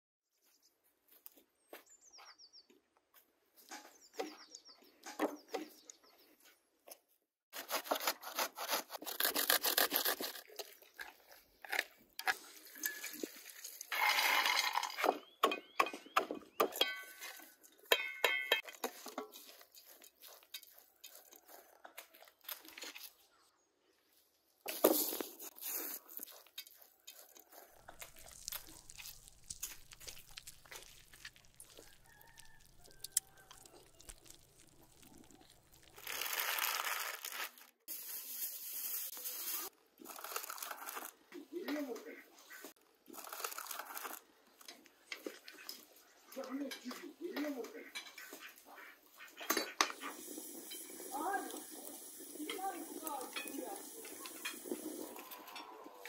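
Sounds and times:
food being handled: 0:09.3 - 0:15.0, 0:24.7 - 0:41.2.

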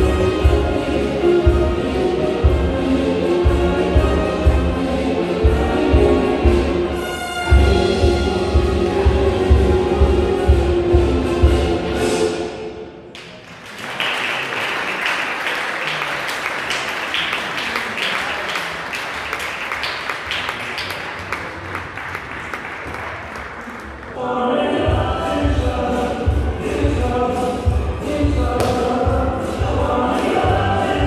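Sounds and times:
paso doble music: 0:00.0 - 0:13.1, 0:24.2 - 0:31.0
audience applauding: 0:13.1 - 0:24.2
jive music with heavy beat: 0:25.0 - 0:31.0.

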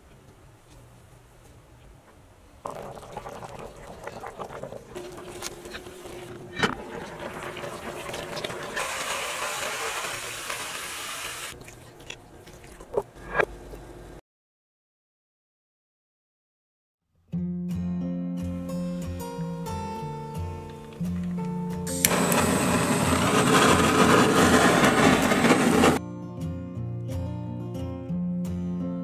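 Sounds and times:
water rushing: 0:02.6 - 0:11.6.

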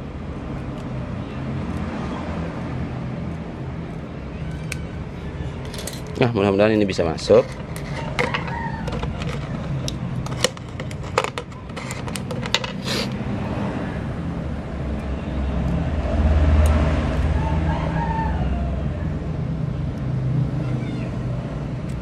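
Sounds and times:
rooster crowing: 0:07.9 - 0:09.8, 0:17.2 - 0:19.2.

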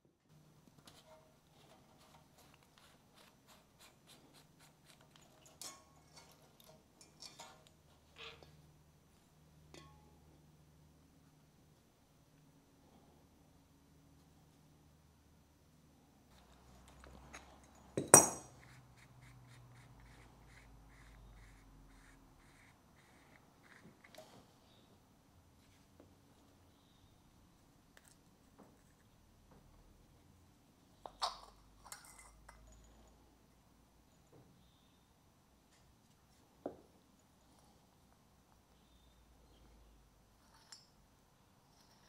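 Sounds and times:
low steady hum: 0:00.0 - 0:42.0
metal clinks: 0:17.2 - 0:18.6, 0:31.3 - 0:33.2.

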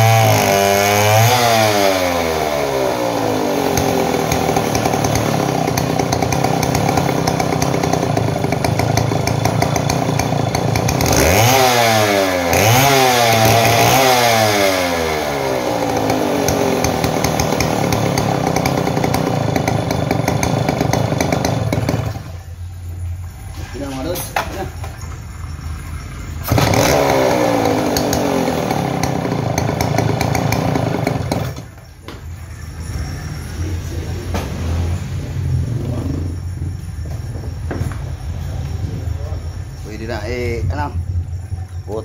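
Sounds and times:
chainsaw engine idling and revving: 0:00.0 - 0:42.0.

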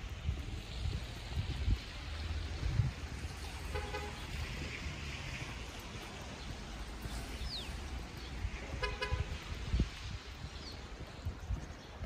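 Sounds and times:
low street rumble: 0:00.0 - 0:12.0
car horn toot: 0:03.7 - 0:04.2, 0:08.8 - 0:09.4.

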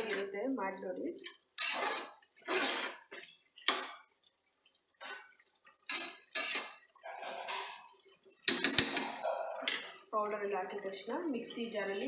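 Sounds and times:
metal spoon scraping a pot: 0:01.6 - 0:03.7, 0:05.8 - 0:07.8.

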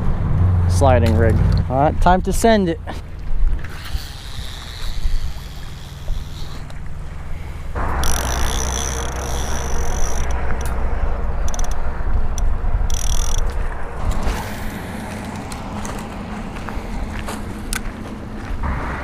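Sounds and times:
wind buffeting microphone: 0:03.2 - 0:19.0
high steady whine: 0:05.4 - 0:19.0.

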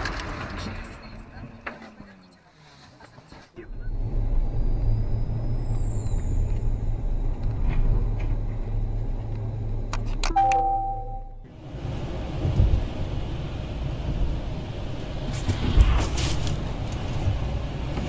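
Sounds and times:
car engine and road rumble: 0:00.0 - 0:18.0
short electronic chime: 0:10.3 - 0:11.4.

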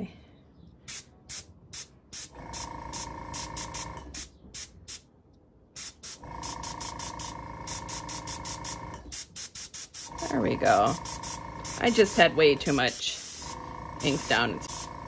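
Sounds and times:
airbrush hissing puffs: 0:00.9 - 0:05.0, 0:05.8 - 0:15.0
compressor motor hum: 0:02.3 - 0:04.1, 0:06.2 - 0:09.1, 0:10.1 - 0:15.0.

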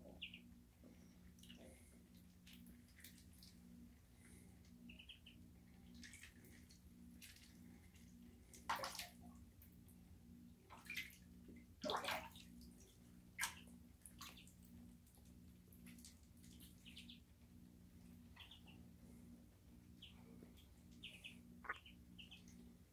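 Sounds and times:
ducklings splashing in water: 0:01.2 - 0:03.6, 0:04.2 - 0:09.7, 0:10.7 - 0:17.3, 0:20.0 - 0:22.6
faint high peeps: 0:21.0 - 0:22.4.

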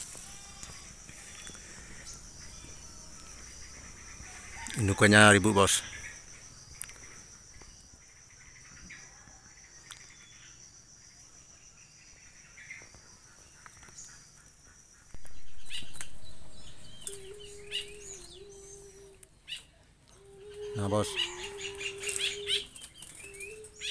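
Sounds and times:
high insect drone: 0:00.0 - 0:19.4, 0:20.1 - 0:23.9
rising and falling bird calls: 0:15.1 - 0:23.9
low steady hum: 0:15.2 - 0:20.8.

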